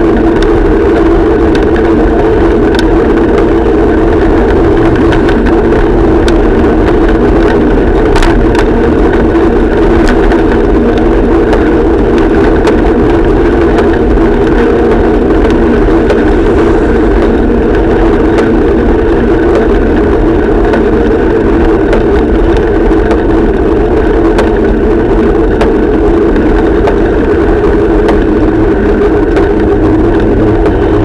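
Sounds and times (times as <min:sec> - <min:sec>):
steady rumbling hum: 0:00.0 - 0:31.0.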